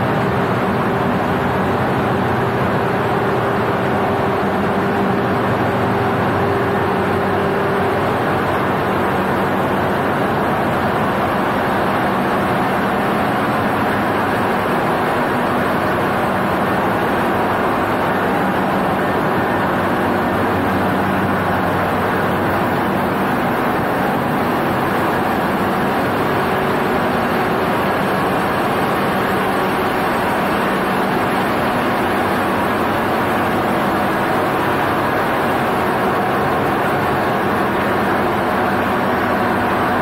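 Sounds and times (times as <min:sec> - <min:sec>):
ship engine room machinery hum: 0:00.0 - 0:40.0.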